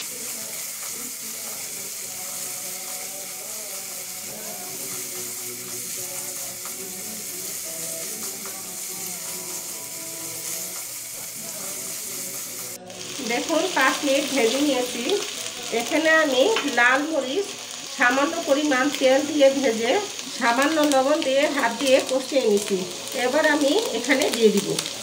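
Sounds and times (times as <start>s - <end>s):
spatula stirring in pan: 0.0s - 15.8s
chicken sizzling in oil: 0.0s - 25.0s.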